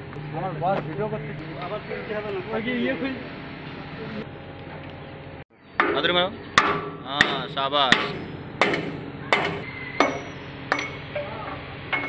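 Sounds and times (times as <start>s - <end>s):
hammer striking steel: 5.8s - 11.3s.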